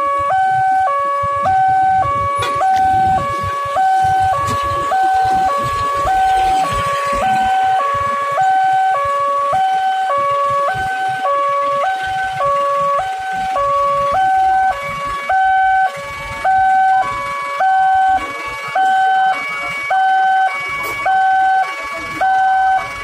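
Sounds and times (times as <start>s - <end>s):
two-tone crossing alarm: 0.0s - 23.0s.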